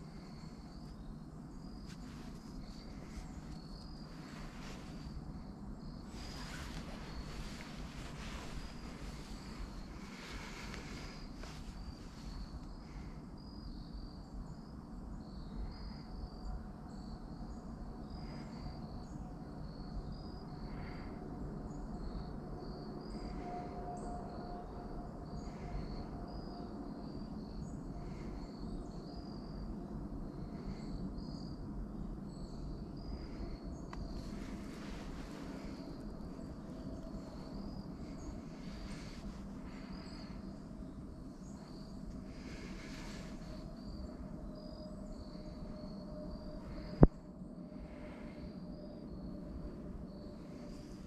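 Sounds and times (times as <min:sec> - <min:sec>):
low rumble: 0:00.0 - 0:13.5
faint high-pitched chirping: 0:00.0 - 0:51.0.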